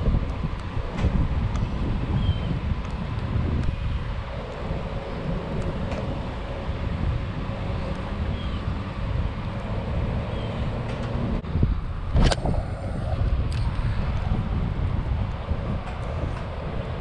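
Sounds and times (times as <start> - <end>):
wind buffeting microphone: 0.0 - 17.0
sharp click: 12.2 - 12.5.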